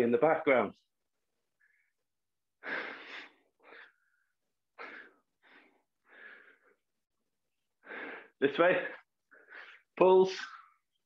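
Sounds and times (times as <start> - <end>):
man breathing hard: 2.6 - 6.9, 7.8 - 8.4.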